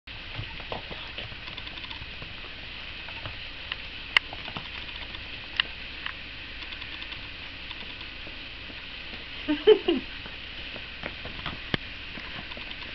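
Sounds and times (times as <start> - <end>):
sharp clicks: 1.4 - 2.0, 3.1 - 8.2, 12.4 - 12.9.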